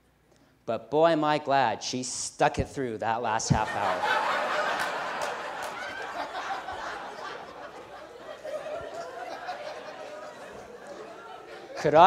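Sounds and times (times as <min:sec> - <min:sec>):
audience laughing: 0:03.4 - 0:12.0.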